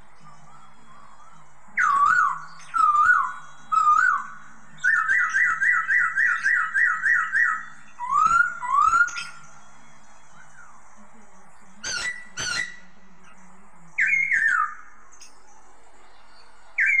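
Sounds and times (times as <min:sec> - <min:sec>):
bird singing whistled phrases: 0:01.8 - 0:09.4, 0:14.0 - 0:14.9, 0:16.8 - 0:17.0.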